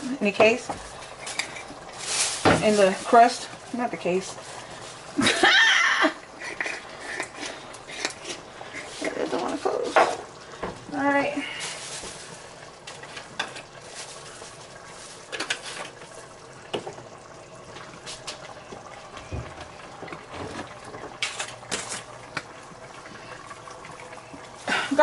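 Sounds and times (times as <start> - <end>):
pot boiling: 0.0 - 25.0
plastic bag rustling: 1.7 - 5.6, 11.4 - 16.0.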